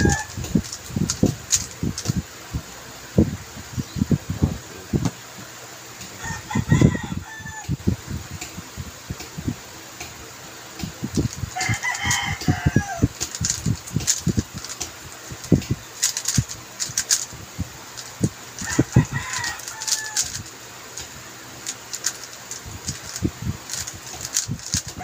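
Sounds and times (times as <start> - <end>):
rooster crowing: 0.0 - 0.4, 6.2 - 7.8, 11.6 - 13.2, 18.6 - 20.5
puzzle cube clicking: 0.0 - 2.2, 10.8 - 17.4, 18.0 - 25.0.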